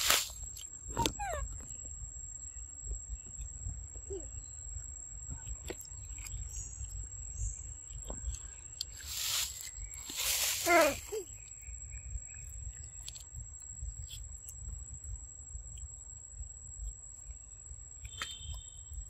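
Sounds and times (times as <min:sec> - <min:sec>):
short rustle: 0:00.0 - 0:00.6, 0:08.2 - 0:11.4
low wind rumble: 0:00.0 - 0:19.0.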